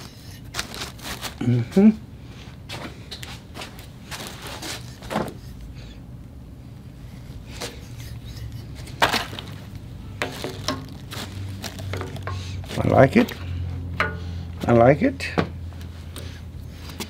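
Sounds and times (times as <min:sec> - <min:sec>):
low steady hum: 0:00.0 - 0:17.0
metal tools clicking and knocking: 0:14.0 - 0:14.2.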